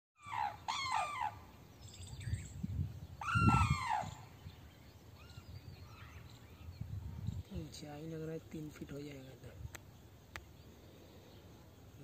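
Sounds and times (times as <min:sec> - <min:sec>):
cranes trumpeting: 0:00.2 - 0:01.5, 0:03.2 - 0:04.4.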